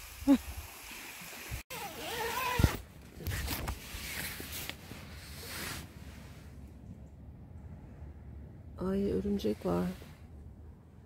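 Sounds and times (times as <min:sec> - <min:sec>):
tent zipper being pulled: 0:01.7 - 0:05.9.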